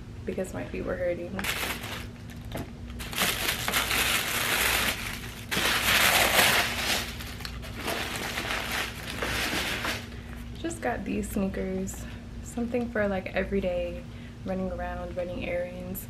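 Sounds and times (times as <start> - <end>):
packaging crinkling: 1.4 - 10.3.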